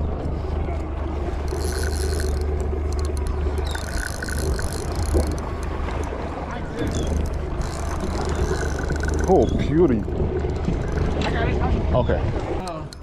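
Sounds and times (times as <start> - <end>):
steady low rumble: 0.0 - 12.6
fishing reel buzzing: 1.3 - 6.1, 6.8 - 11.2.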